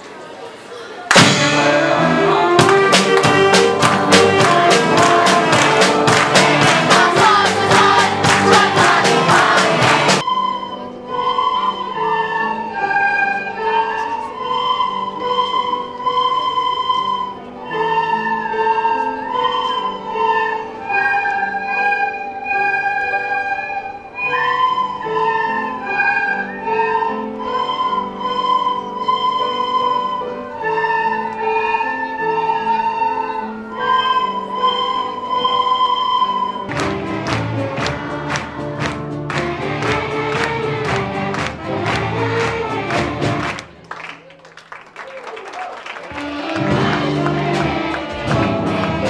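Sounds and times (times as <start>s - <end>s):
steady drum beat: 1.1s - 10.2s, 36.7s - 43.6s
children playing recorders: 10.2s - 36.8s.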